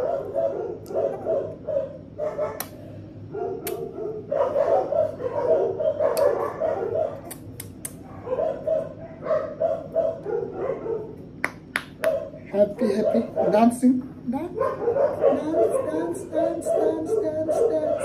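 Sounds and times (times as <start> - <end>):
puppies crying: 0.0 - 2.6, 12.1 - 13.8, 14.5 - 18.0.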